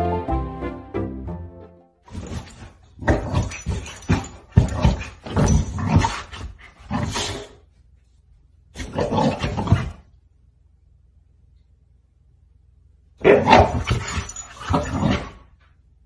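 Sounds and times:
dog growling: 0:02.1 - 0:07.6, 0:08.8 - 0:10.1.

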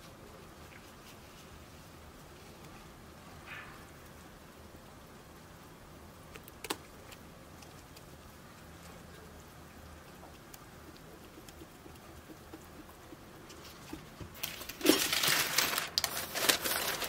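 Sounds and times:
whisk stirring thick batter: 0:10.5 - 0:15.2.

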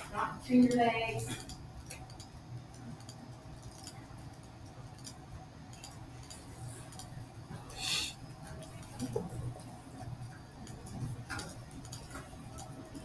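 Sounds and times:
short hiss: 0:07.8 - 0:08.2
light clicks and taps: 0:08.4 - 0:13.0.

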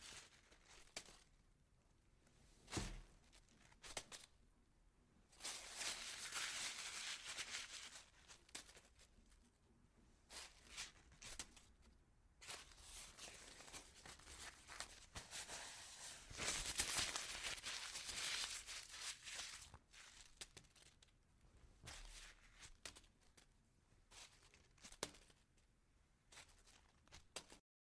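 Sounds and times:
paper crumpling: 0:05.4 - 0:09.0, 0:12.4 - 0:21.0.

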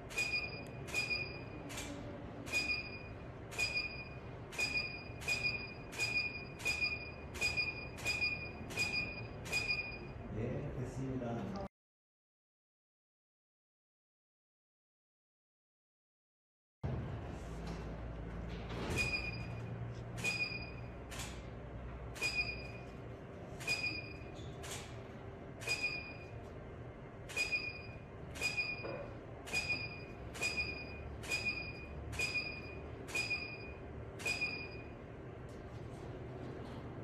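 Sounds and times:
short high beep: 0:00.1 - 0:01.6, 0:02.5 - 0:10.1, 0:20.2 - 0:20.9, 0:22.2 - 0:22.9, 0:23.6 - 0:24.3, 0:25.6 - 0:26.3, 0:27.3 - 0:34.9.

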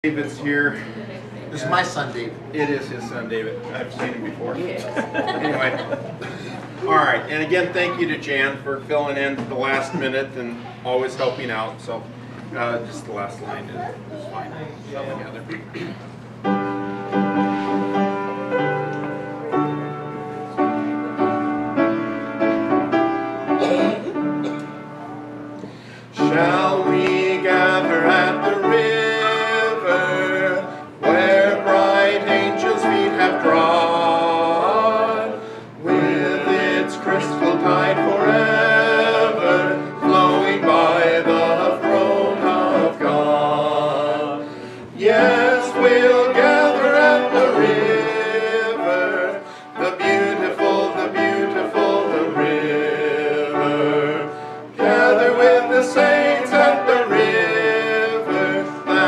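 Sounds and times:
piano accompaniment: 0:16.4 - 0:59.0
male vocal quartet singing: 0:26.0 - 0:59.0.

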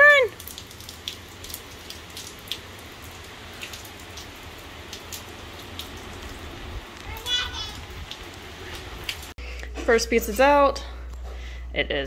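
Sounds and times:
light rain falling: 0:00.0 - 0:09.4
raindrops ticking sharply: 0:00.0 - 0:09.4.

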